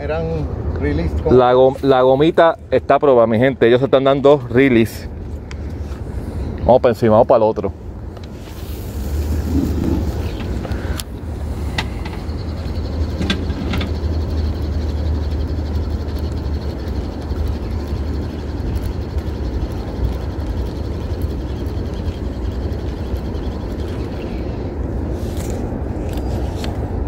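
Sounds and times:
boat motor humming: 8.7 - 27.0.

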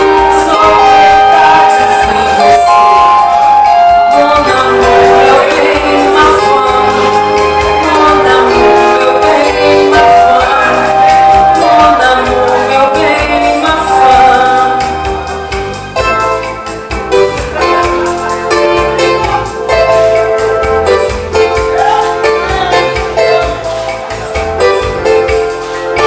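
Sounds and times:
woman singing through microphone: 0.0 - 15.2, 21.6 - 23.7
amplified keyboard with beat: 0.0 - 26.0.

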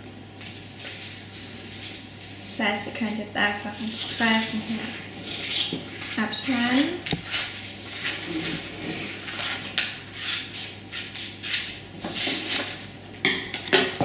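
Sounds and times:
paper rustling: 4.4 - 12.8.

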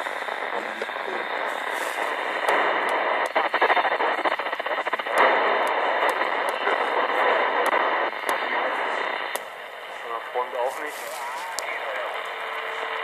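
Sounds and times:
fluttering radio signal: 0.0 - 13.0
radio static hiss: 0.0 - 13.0
sharp clicks: 2.4 - 3.8.

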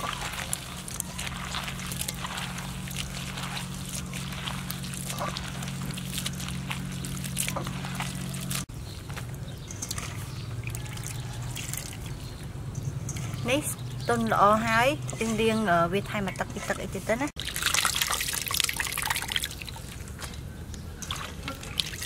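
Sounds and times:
hands splashing water in a bowl: 0.0 - 8.7, 9.6 - 13.6, 17.4 - 20.4
steady low hum: 0.1 - 10.7.

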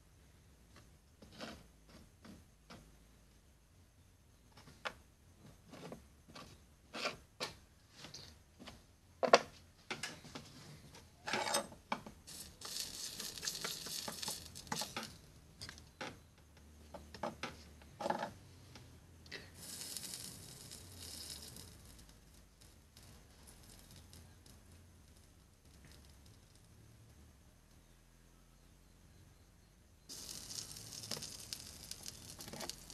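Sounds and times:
soldering iron hissing: 12.2 - 15.3, 19.4 - 22.4, 30.1 - 32.9.

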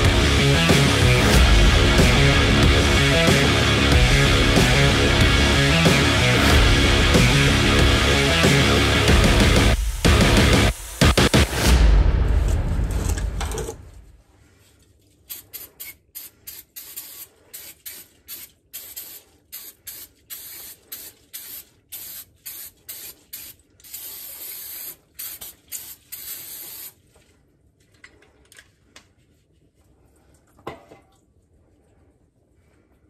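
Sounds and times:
background music: 0.0 - 13.9
aerosol spray can hissing: 15.3 - 27.0.

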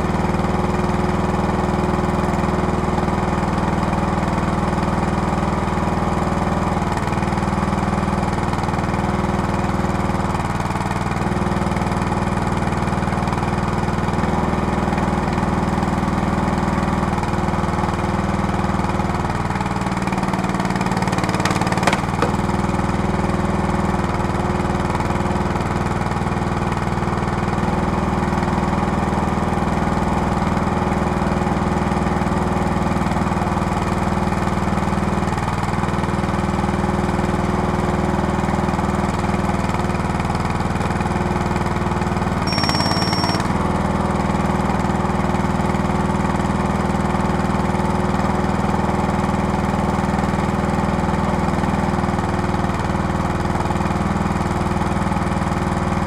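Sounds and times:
small petrol engine running: 0.0 - 24.8, 42.3 - 44.2
short high-pitched tone: 42.5 - 43.6.

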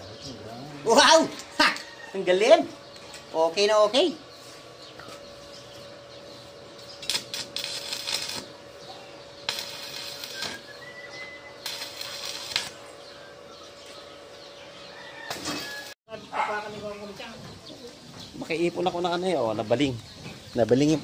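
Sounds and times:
steady thin hum: 0.3 - 15.2
welding arc crackling: 6.4 - 13.2, 15.3 - 16.0.

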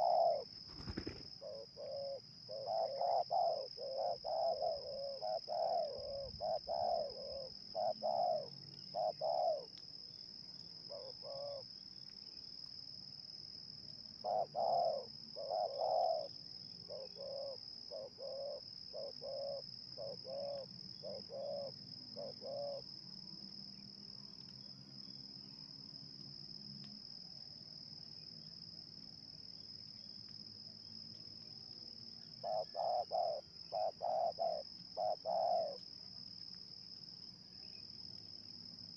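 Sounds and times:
doves cooing: 0.0 - 9.7, 10.9 - 11.6, 14.2 - 16.3, 16.9 - 22.8, 32.4 - 35.8.

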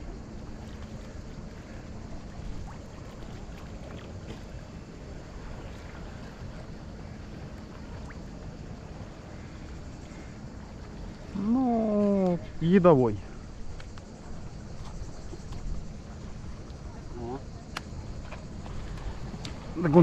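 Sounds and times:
faint clicks: 13.7 - 14.1, 17.7 - 19.6.

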